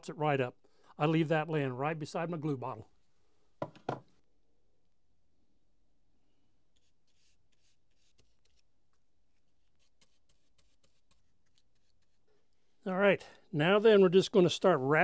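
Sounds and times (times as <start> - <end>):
faint brush scratching: 6.7 - 12.8.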